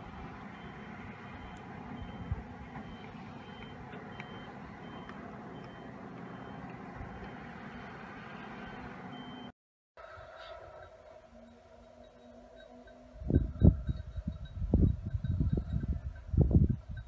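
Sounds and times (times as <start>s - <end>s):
heavy machinery running: 0.0s - 9.4s
backup alarm beeping: 0.5s - 7.6s, 8.6s - 9.5s.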